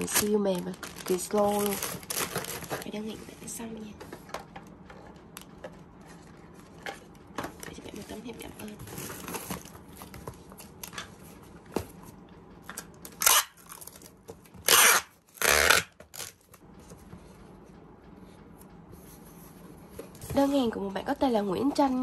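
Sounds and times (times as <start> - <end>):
packing tape ripping: 0.0 - 2.8, 13.1 - 16.4.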